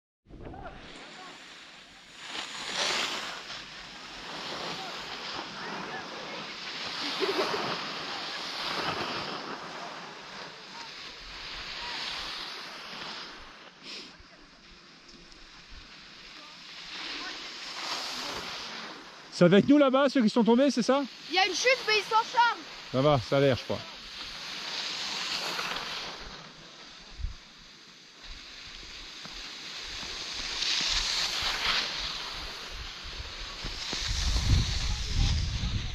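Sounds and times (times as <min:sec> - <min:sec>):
skis scraping over snow: 0:00.5 - 0:35.9
wind on microphone: 0:32.4 - 0:35.9.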